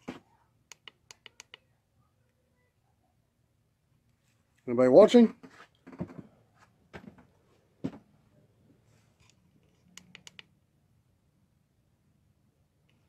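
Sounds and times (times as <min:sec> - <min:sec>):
sharp clicks: 0:00.7 - 0:01.6, 0:09.9 - 0:10.5.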